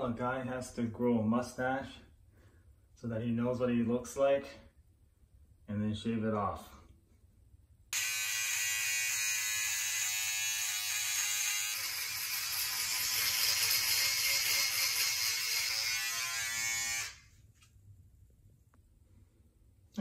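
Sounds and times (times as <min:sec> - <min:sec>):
electric shaver buzzing: 0:08.0 - 0:17.3.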